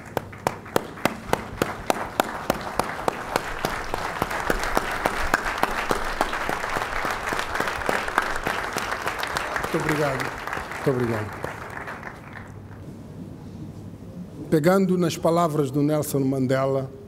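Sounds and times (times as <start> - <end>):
audience applause: 0.0 - 12.8.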